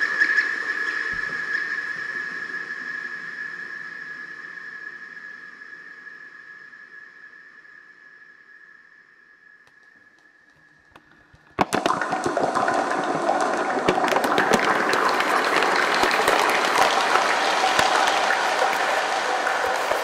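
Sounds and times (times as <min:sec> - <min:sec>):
plastic bottle crinkling with delay: 0:09.7 - 0:20.0.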